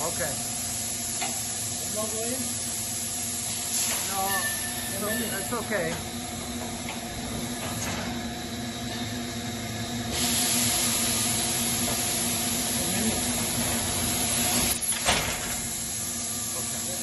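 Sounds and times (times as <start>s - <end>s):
machine humming: 0.0s - 17.0s
loud hiss of air: 0.1s - 5.6s, 10.0s - 17.0s.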